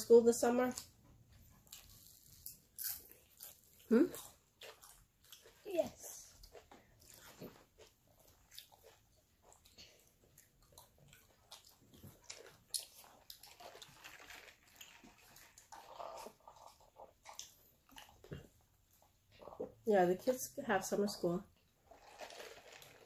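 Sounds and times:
chewing and biting food: 0.8 - 19.8, 21.6 - 23.0.

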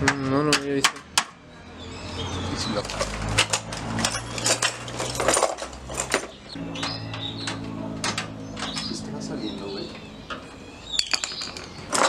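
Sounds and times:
metal tools clanking: 2.7 - 12.0.

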